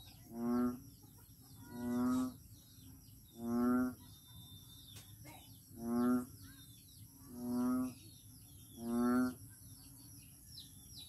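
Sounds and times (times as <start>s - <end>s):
frog croaking: 0.0s - 2.5s, 3.2s - 4.2s, 5.7s - 6.5s, 7.2s - 9.5s
faint birds chirping: 0.0s - 11.0s.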